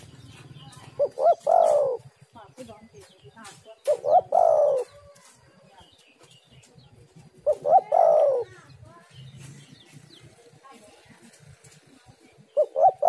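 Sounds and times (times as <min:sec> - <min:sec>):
dove cooing: 0:00.1 - 0:02.3, 0:03.8 - 0:05.1, 0:07.2 - 0:08.6, 0:12.3 - 0:13.0.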